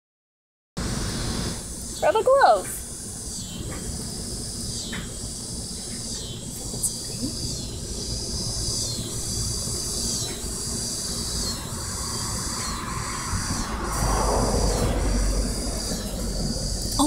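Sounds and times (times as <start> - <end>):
rushing noise: 0.8 - 5.6, 7.9 - 17.0
insects calling in chorus: 1.6 - 17.0
low rumble: 11.6 - 17.0.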